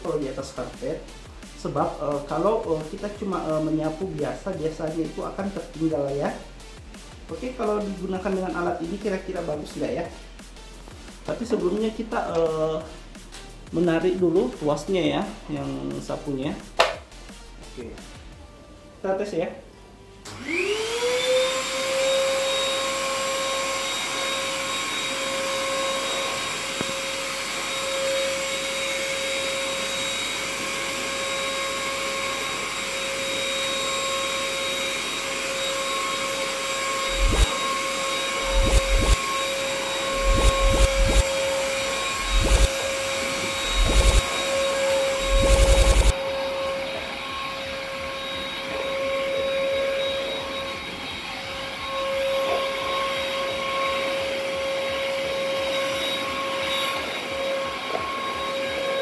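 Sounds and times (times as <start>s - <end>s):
vacuum cleaner motor whine: 20.2s - 59.0s.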